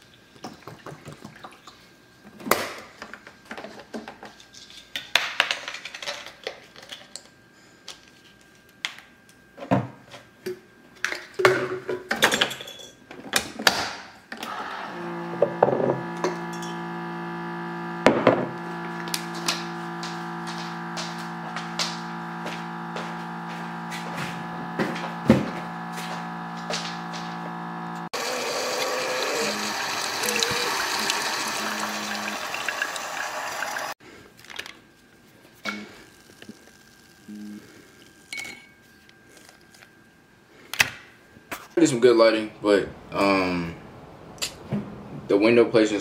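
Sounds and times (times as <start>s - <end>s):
water pouring: 28.2s - 34.0s.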